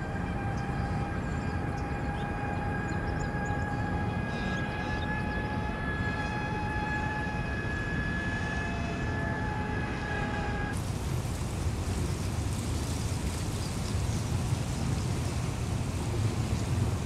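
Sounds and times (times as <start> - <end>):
high machine whine: 0.0 - 10.9
low outdoor rumble: 0.0 - 17.0.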